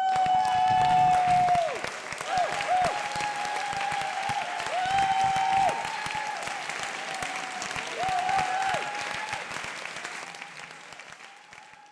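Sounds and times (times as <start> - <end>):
audience applauding: 0.0 - 11.9.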